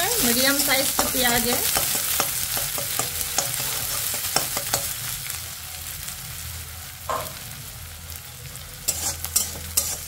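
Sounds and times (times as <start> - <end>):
onion sizzling in hot oil: 0.0 - 10.0
wooden spatula scraping pan: 8.9 - 10.0.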